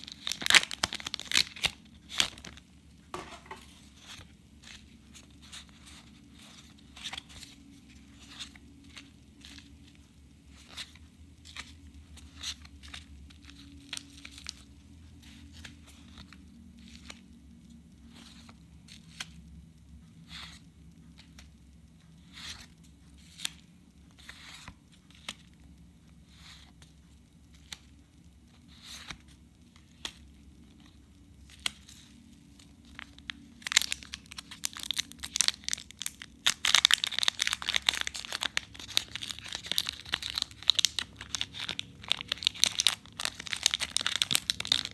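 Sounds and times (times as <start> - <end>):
foil wrapper crinkling and tearing: 0.0 - 2.6, 32.7 - 44.9.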